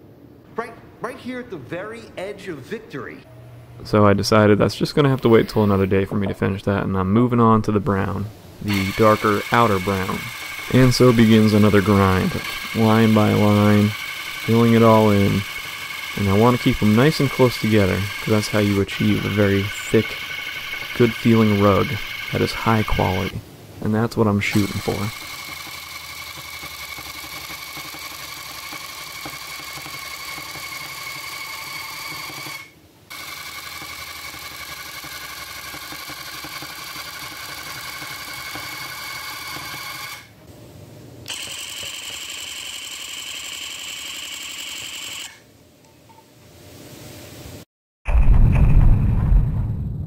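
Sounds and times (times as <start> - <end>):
electric tufting gun motor whine: 8.6 - 23.4, 24.5 - 40.3, 41.3 - 45.4.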